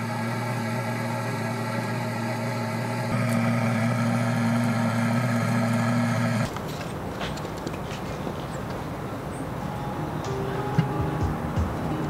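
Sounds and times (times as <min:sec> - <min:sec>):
gas torch flame droning: 0:00.0 - 0:07.0.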